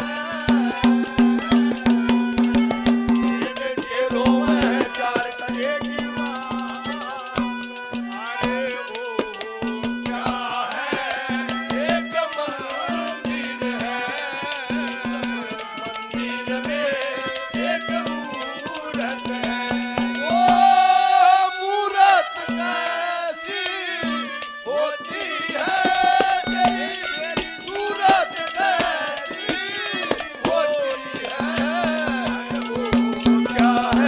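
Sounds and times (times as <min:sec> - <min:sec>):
hand drums: 0:00.0 - 0:21.3, 0:22.4 - 0:23.0, 0:23.9 - 0:34.0
harmonium: 0:00.0 - 0:34.0.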